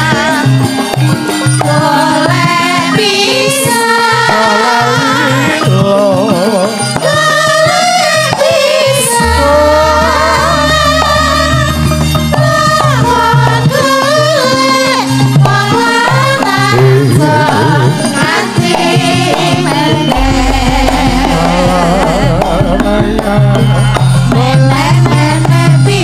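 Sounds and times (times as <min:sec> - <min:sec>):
drumming: 0:00.0 - 0:26.0
metallophone notes: 0:00.0 - 0:26.0
person singing: 0:01.6 - 0:06.9, 0:09.0 - 0:11.7, 0:16.7 - 0:26.0
deep low tone: 0:09.2 - 0:11.4, 0:20.1 - 0:25.1.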